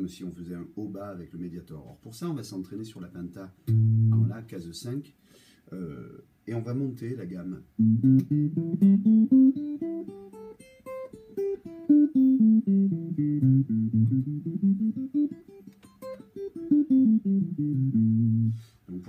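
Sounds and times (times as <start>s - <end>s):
clean electric guitar scale: 7.8s - 10.0s, 11.8s - 19.0s.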